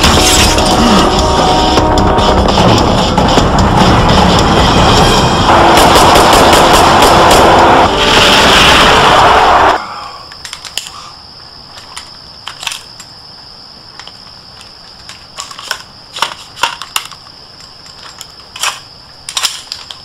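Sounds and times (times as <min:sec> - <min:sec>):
loud vehicle noise: 0:02.5 - 0:09.8
rifle metallic clicks and rattles: 0:10.4 - 0:11.0, 0:11.7 - 0:13.1, 0:14.0 - 0:20.0.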